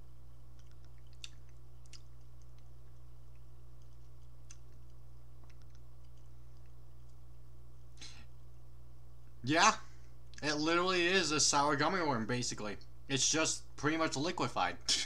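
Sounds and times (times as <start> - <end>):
low electrical hum: 0.0 - 15.0
mouth clicks and lip smacks: 0.5 - 8.2.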